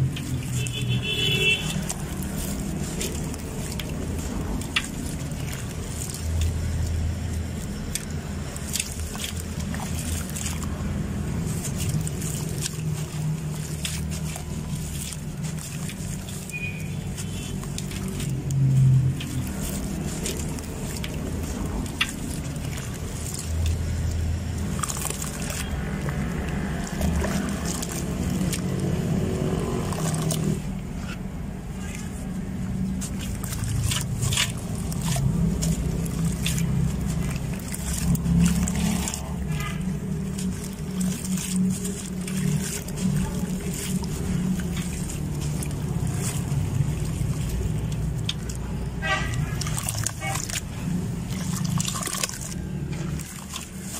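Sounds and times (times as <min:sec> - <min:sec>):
gritty cement crunching: 0:00.0 - 0:53.9
water splashing and sloshing: 0:00.0 - 0:53.9.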